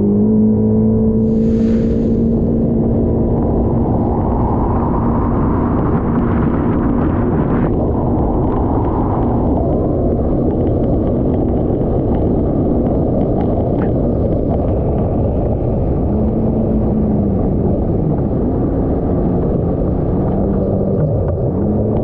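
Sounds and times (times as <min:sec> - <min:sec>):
rush of wind and water: 0:00.8 - 0:22.0
watercraft engine drone: 0:00.8 - 0:22.0.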